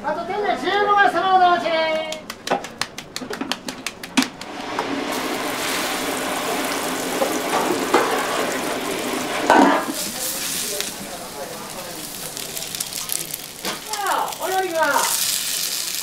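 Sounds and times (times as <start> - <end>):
meat patty sizzling on griddle: 4.4 - 16.0.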